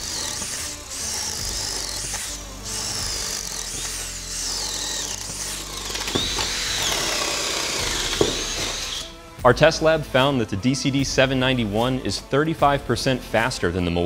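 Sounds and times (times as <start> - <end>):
drills boring through wood: 0.0 - 9.2.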